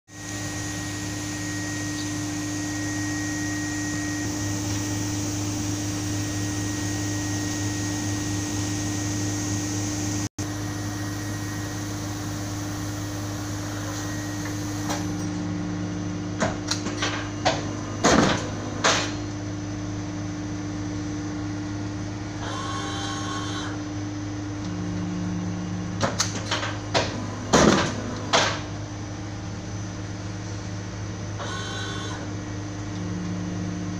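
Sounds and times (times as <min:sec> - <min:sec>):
paper cutter humming: 0:24.6 - 0:29.8, 0:31.3 - 0:33.9
brief buzz: 0:31.4 - 0:32.3.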